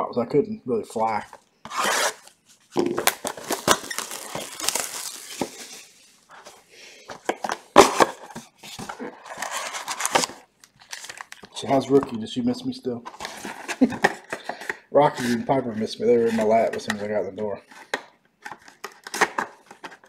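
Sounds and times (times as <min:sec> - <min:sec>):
plastic wrap crinkling and tearing: 0:01.7 - 0:06.4, 0:08.8 - 0:12.0.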